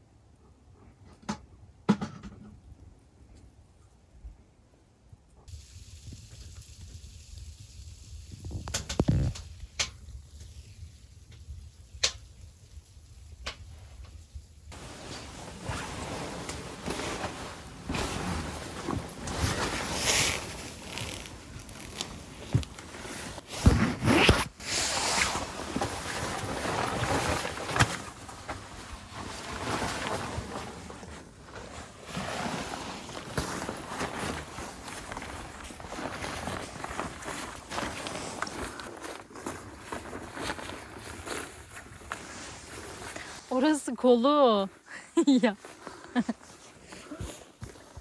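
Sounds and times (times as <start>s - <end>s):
wind: 0.0s - 48.0s
tent fabric rustling: 13.7s - 48.0s.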